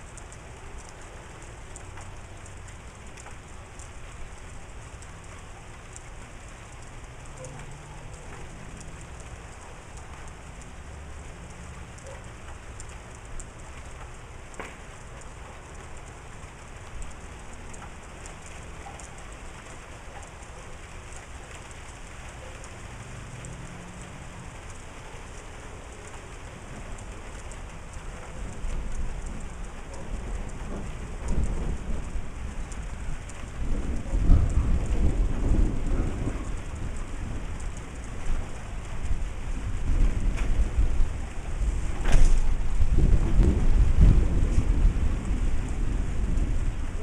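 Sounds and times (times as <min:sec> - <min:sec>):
rain pattering on surfaces: 0:00.0 - 0:47.0
low rumble: 0:30.2 - 0:47.0.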